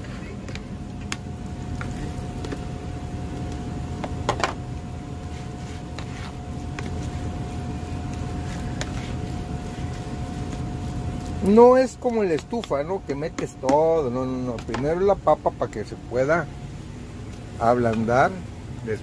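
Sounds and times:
faint constant tone: 0.0s - 19.0s
low mechanical hum: 0.0s - 19.0s
plastic spoon scraping bowl: 5.3s - 7.5s.

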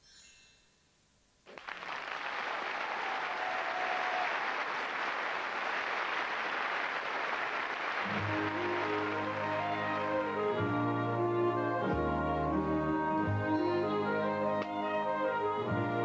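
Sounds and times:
audience applauding: 1.5s - 11.0s
music: 8.0s - 16.0s.

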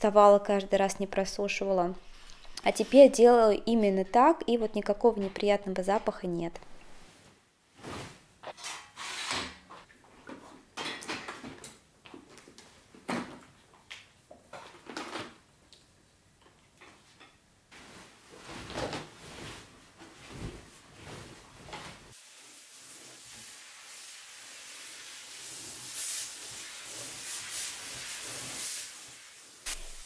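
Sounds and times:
fabric rustling and sliding: 6.8s - 8.6s, 17.7s - 22.2s
hiss: 22.2s - 30.0s.

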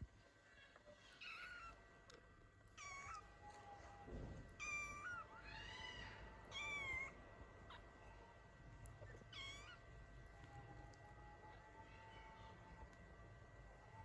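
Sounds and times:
kittens mewing: 1.1s - 1.8s, 2.8s - 3.3s, 4.6s - 8.0s, 9.0s - 9.9s.

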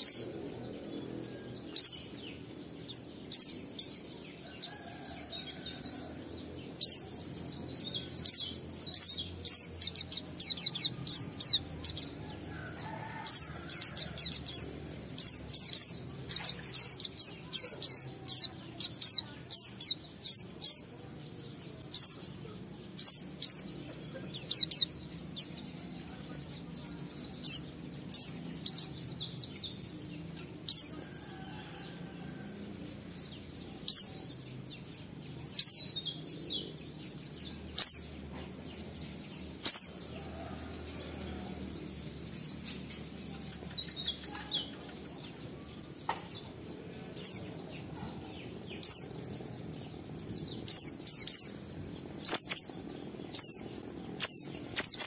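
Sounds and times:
bird chirping rapidly: 0.0s - 4.9s, 5.6s - 20.9s, 21.8s - 22.3s, 22.9s - 30.0s, 33.8s - 34.2s, 36.9s - 38.2s, 39.2s - 40.1s, 47.1s - 47.5s, 48.5s - 55.0s.

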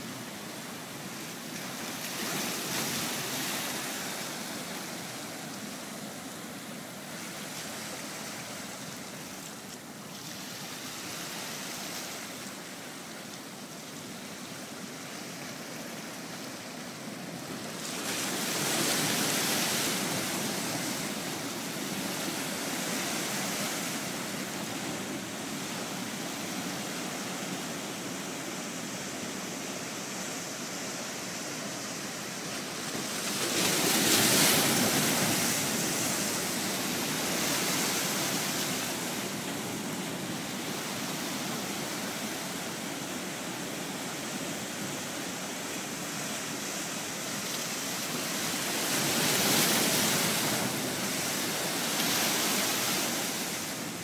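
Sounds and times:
ocean waves breaking on rocks: 0.0s - 13.2s, 13.8s - 54.0s.

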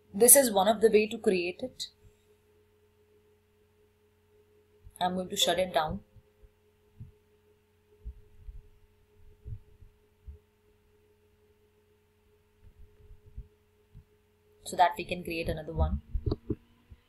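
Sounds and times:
faint electrical hum: 0.0s - 17.0s
soft dull low thumps: 5.8s - 7.2s, 8.0s - 10.6s, 12.6s - 14.2s, 15.2s - 17.0s.

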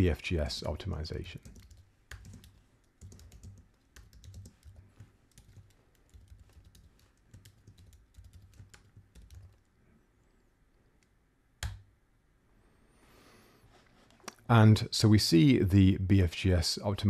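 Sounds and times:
computer keyboard typing: 1.4s - 9.7s, 11.6s - 11.8s.

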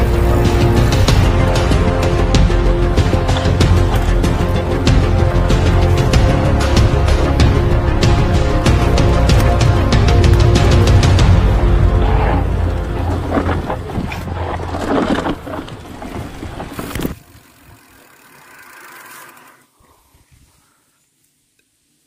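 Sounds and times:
tyres rumbling over dirt: 0.0s - 19.4s
bike rattles and clicks: 2.9s - 6.5s, 12.6s - 19.7s.

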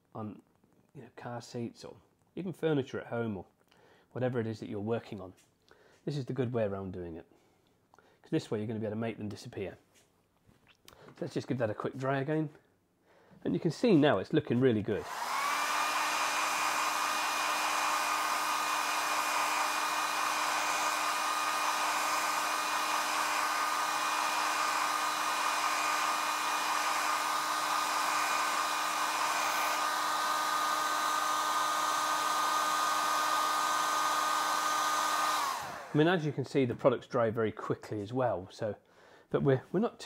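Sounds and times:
hot-air dryer blowing: 15.0s - 36.2s.

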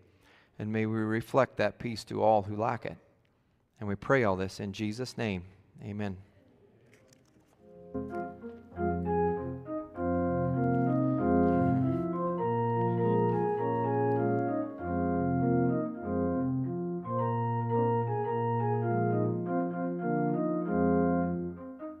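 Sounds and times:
organ playing slow chords: 7.6s - 22.0s.

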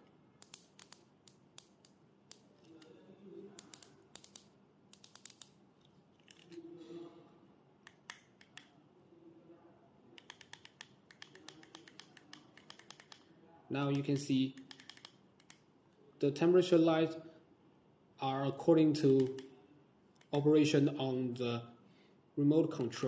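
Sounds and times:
plastic remote buttons clicking: 3.6s - 5.5s, 10.2s - 13.3s, 13.9s - 15.6s.

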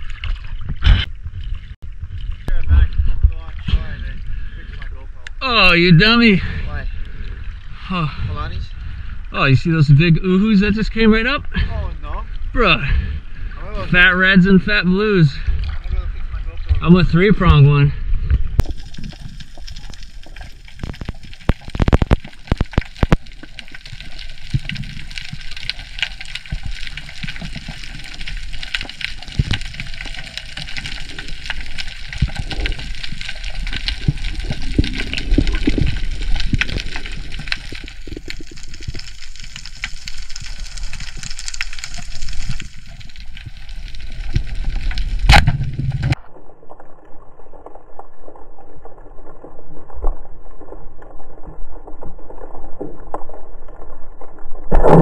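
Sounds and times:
water sloshing and gurgling: 0.0s - 14.4s, 15.0s - 55.0s
dense crackle of small clicks: 18.3s - 54.7s.

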